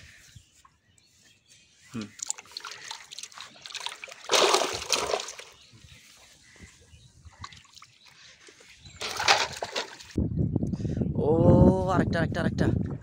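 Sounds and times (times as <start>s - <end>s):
fish splashing in bucket: 2.2s - 5.6s, 9.0s - 10.2s.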